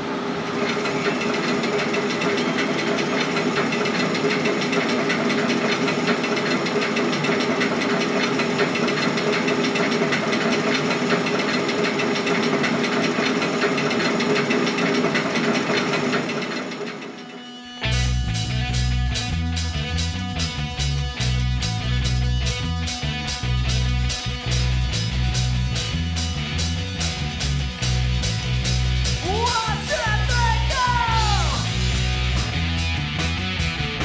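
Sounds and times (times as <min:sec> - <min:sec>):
roller coaster lift rattle: 0:00.0 - 0:18.0, 0:29.1 - 0:34.0
mechanical hum: 0:00.0 - 0:19.4.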